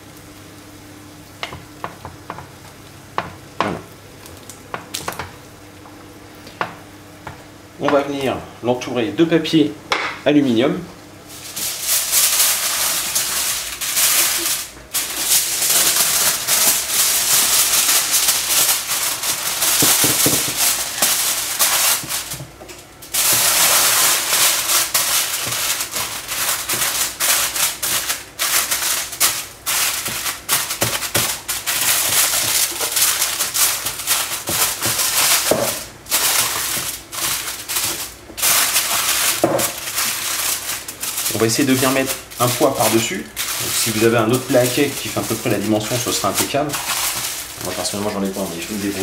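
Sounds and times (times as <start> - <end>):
aluminium foil crinkling: 11.3 - 49.0.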